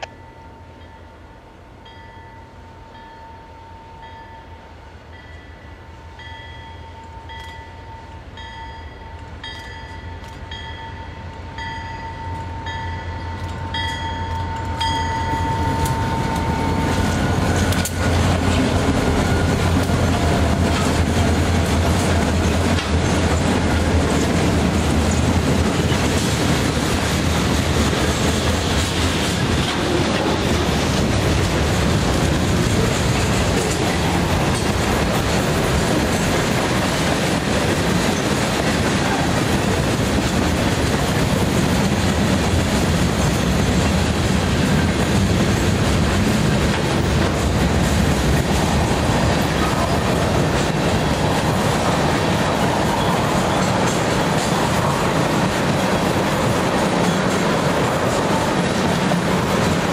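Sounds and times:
crossing bell dinging: 0.0 - 24.1
train wheels clacking on rails: 6.2 - 59.9
diesel locomotive rumble: 10.2 - 59.9.

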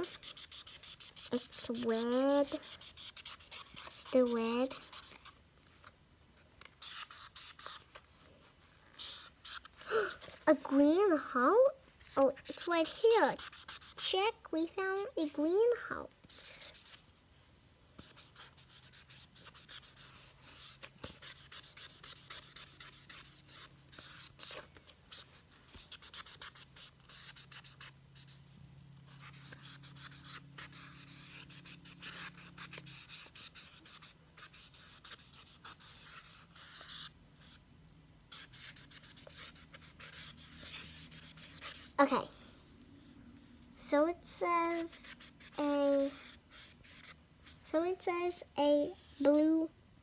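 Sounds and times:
marker scribbling on paper: 0.0 - 5.3, 6.8 - 8.0, 8.9 - 9.8, 12.2 - 14.2, 16.2 - 17.0, 18.0 - 28.4, 29.1 - 37.6, 38.3 - 42.0, 44.3 - 48.2.

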